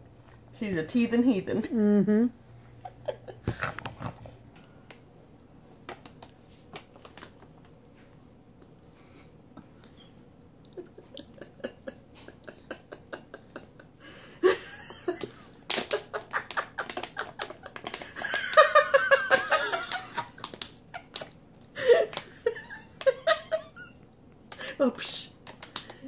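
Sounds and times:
women laughing: 1.6s - 3.7s, 10.7s - 24.0s.

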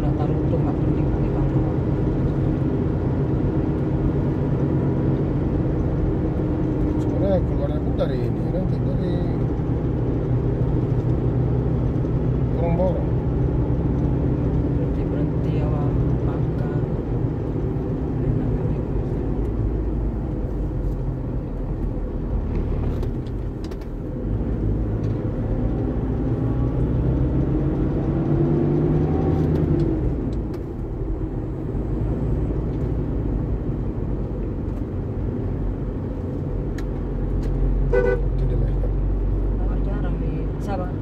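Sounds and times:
engine and tyre rumble: 0.0s - 41.0s.

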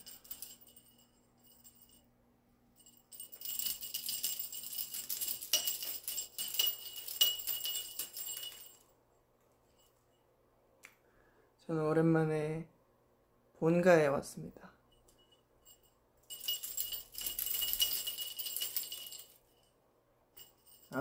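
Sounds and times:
jingle bell shaken: 0.0s - 2.1s, 2.8s - 8.9s, 15.0s - 19.7s, 20.4s - 21.0s.

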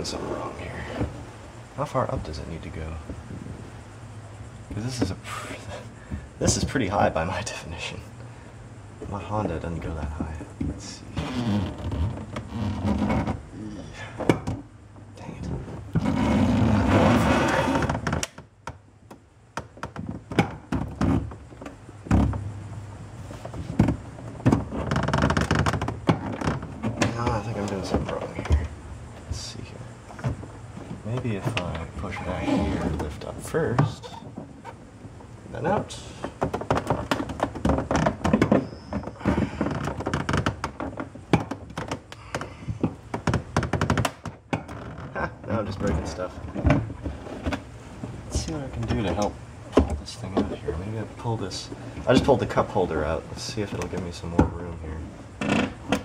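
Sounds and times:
plastic console knocking and rattling: 9.1s - 10.9s, 15.3s - 22.6s, 23.3s - 34.6s, 35.6s - 56.0s
plastic console scraping against trim: 15.5s - 18.3s, 31.2s - 34.8s
plastic knocks and clicks: 36.4s - 44.8s.

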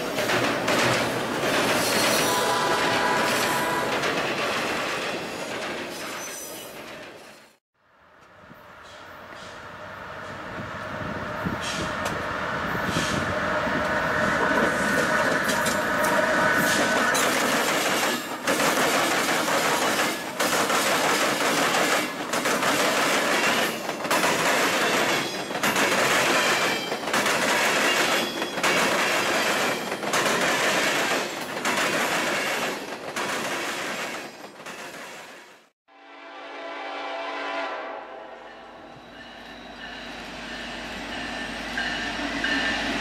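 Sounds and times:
rail cars clattering over rails: 0.0s - 7.6s, 11.4s - 35.6s
freight train passing: 0.0s - 43.0s.

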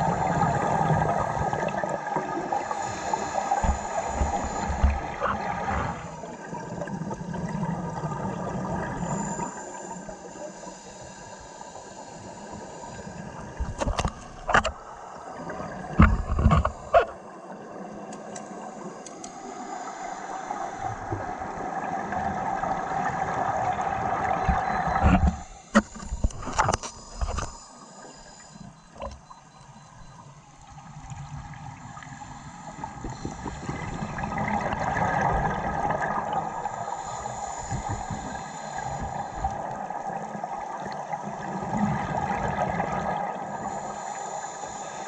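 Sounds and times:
diver breathing bubbles underwater: 0.0s - 14.1s, 31.2s - 45.0s.

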